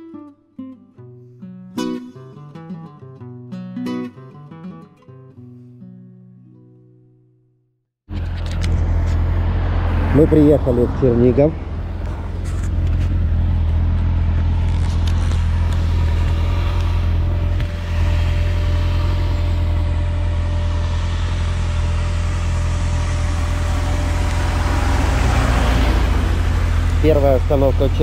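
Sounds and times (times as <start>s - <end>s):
motorcycle engine idling: 15.4s - 24.5s.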